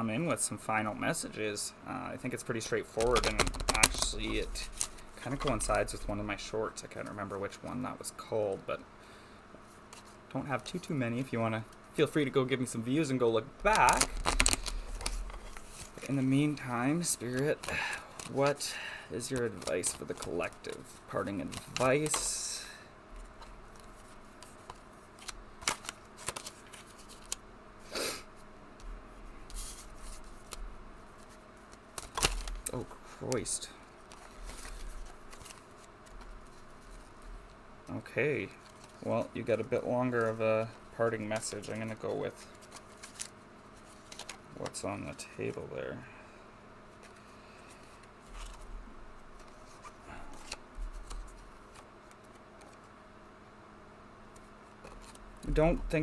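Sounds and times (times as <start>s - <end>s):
cards scraping and clicking: 2.9s - 6.2s, 13.6s - 18.6s, 19.2s - 22.4s, 23.2s - 27.4s, 31.2s - 37.3s, 38.4s - 45.6s, 49.4s - 52.9s, 54.3s - 56.0s.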